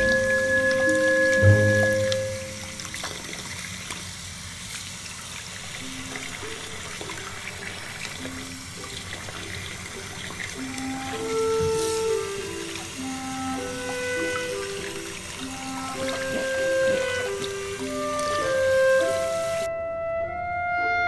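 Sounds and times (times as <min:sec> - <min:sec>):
tap water running into sink: 0:00.0 - 0:19.7
faint background music: 0:05.7 - 0:21.0.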